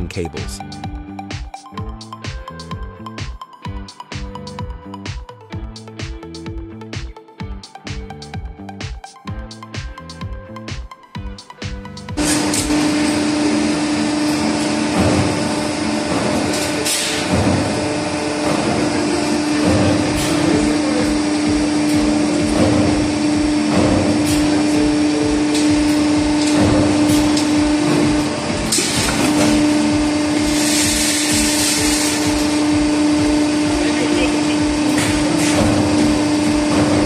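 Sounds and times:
motor hum: 0:12.1 - 0:37.0.

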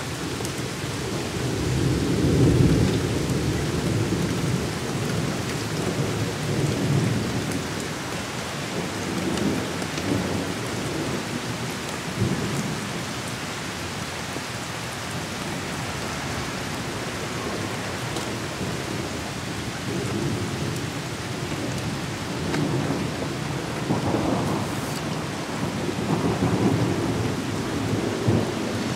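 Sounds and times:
steady rain: 0:00.0 - 0:28.9
low thunder rumbling: 0:21.7 - 0:28.9.

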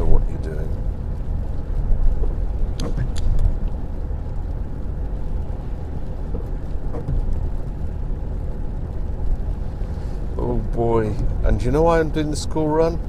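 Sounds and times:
engine and tyre rumble: 0:00.0 - 0:13.0.

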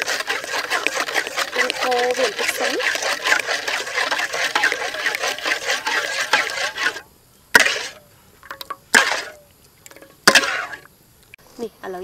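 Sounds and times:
sauce bubbling in a wok: 0:00.0 - 0:06.9
metal ladle stirring: 0:00.0 - 0:07.0, 0:07.6 - 0:10.8.

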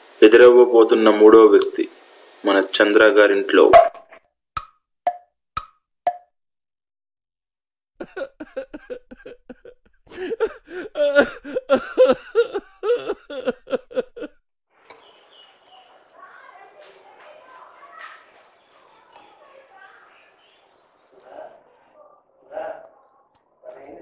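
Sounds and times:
fast chattering voices: 0:14.9 - 0:22.2.

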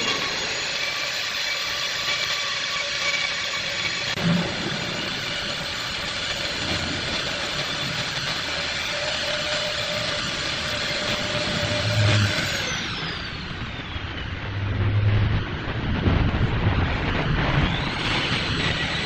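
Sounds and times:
rotary tool grinding wood: 0:00.0 - 0:14.0.

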